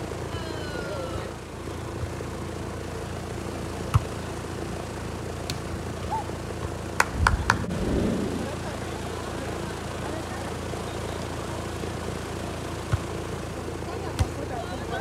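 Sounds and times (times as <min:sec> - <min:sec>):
volleyball slapped by hands: 0:05.4 - 0:07.6
low background rumble: 0:06.8 - 0:10.5.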